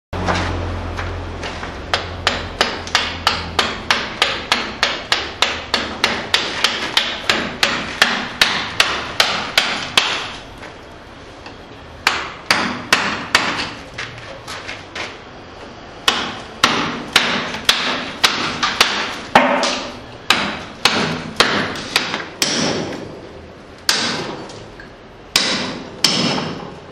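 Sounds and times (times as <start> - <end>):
hammer striking chisel into stone: 1.9 - 10.3, 12.0 - 13.8, 16.0 - 23.0, 23.9 - 24.4, 25.3 - 26.7.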